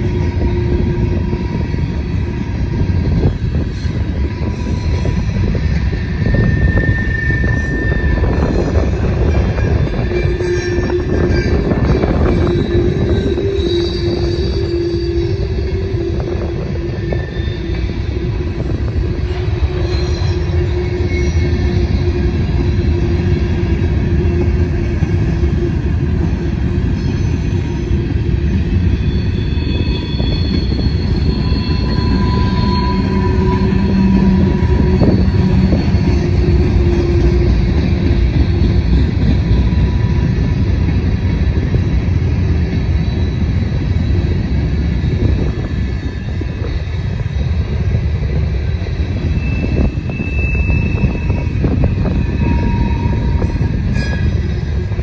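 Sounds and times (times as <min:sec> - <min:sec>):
thin squealing tones: 0:00.0 - 0:25.8, 0:26.8 - 0:40.6, 0:48.3 - 0:55.0
train wheels rumbling on rail: 0:00.0 - 0:55.0.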